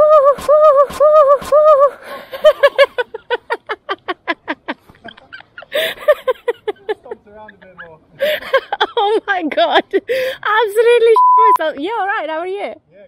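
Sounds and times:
laugh-like burst: 0.0s - 9.0s.

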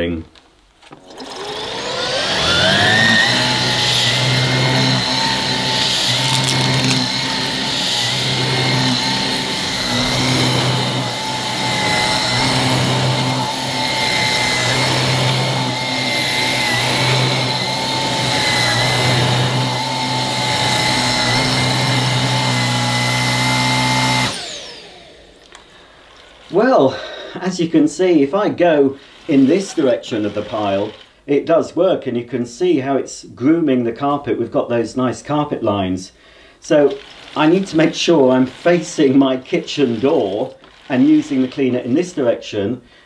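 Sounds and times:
vacuum motor whine: 1.0s - 26.6s, 29.1s - 31.2s.

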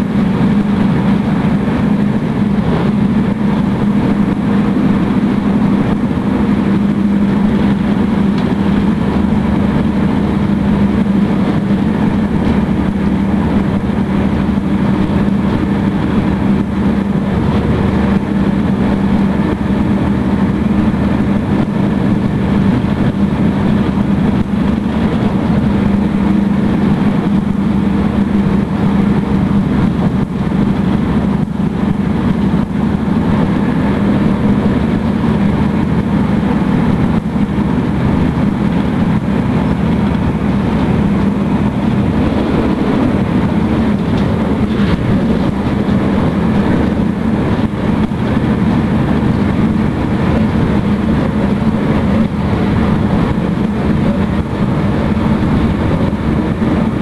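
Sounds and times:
train running at speed: 0.0s - 57.0s.

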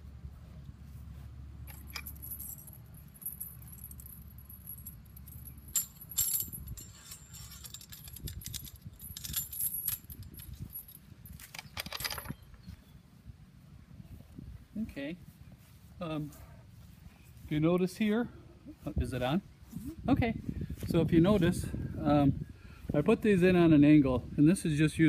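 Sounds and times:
chains clinking against metal posts: 1.6s - 12.5s.

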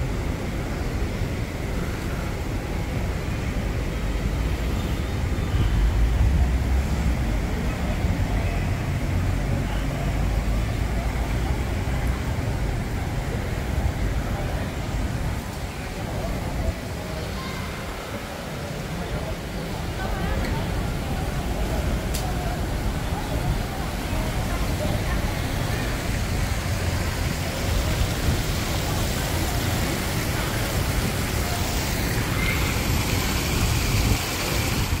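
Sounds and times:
faint voices of passers-by: 0.0s - 35.0s
road traffic rumble: 0.0s - 35.0s.

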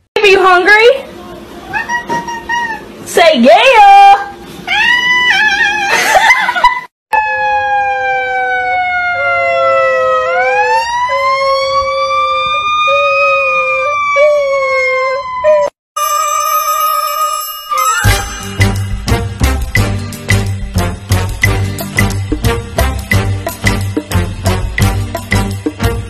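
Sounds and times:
siren-like wail: 7.1s - 15.7s.

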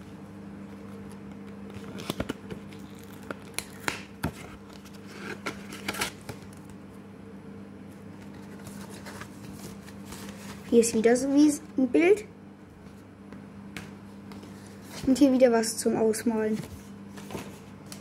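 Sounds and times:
cardboard and paper rustling: 0.8s - 6.6s, 8.1s - 11.6s, 14.3s - 15.5s, 16.4s - 18.0s.

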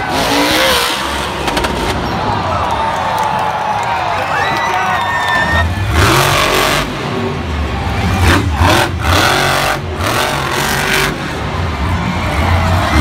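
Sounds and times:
monster truck engine revving: 0.0s - 2.4s, 5.4s - 13.0s.

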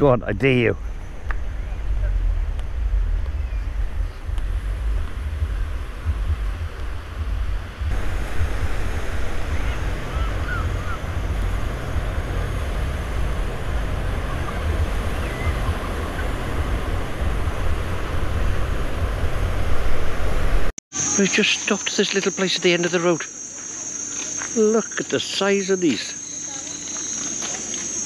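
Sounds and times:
wind buffeting microphone: 0.0s - 20.7s
surf washing onto beach: 7.8s - 20.7s.

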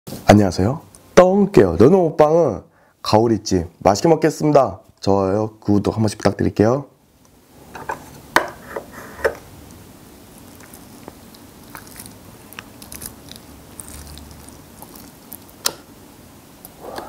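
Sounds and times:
wet sticky tearing: 10.4s - 15.8s.

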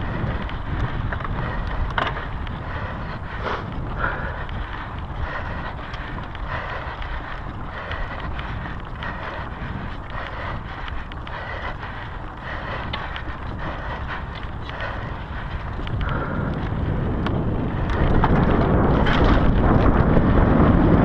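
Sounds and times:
bike rolling over gravel: 0.0s - 21.0s
stones and bike rattling: 0.0s - 21.0s
wind on microphone: 0.0s - 21.0s.

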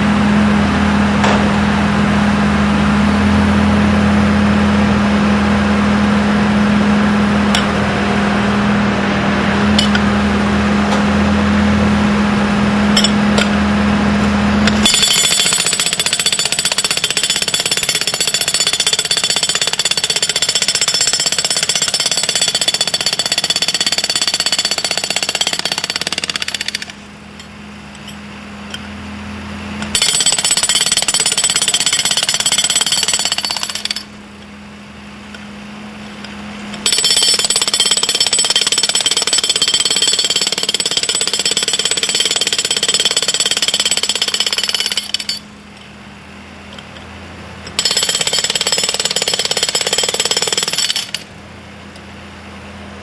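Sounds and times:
hydraulic breaker hammering concrete: 14.6s - 27.0s, 29.8s - 34.1s, 36.8s - 45.4s, 47.7s - 51.3s.

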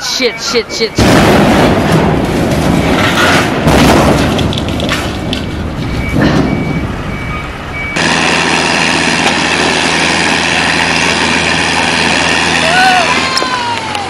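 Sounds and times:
reversing alarm beeps: 0.0s - 1.3s, 2.7s - 3.3s, 5.4s - 8.0s
heavy diesel engine running: 0.0s - 14.0s
rough rumbling noise: 0.3s - 13.3s.

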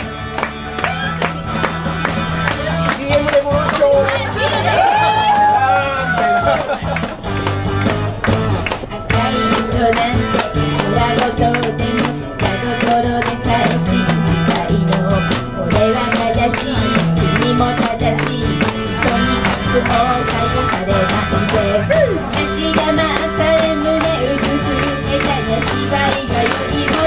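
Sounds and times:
backing track with steady beat: 0.0s - 27.0s
woman singing into microphone: 9.0s - 27.0s.

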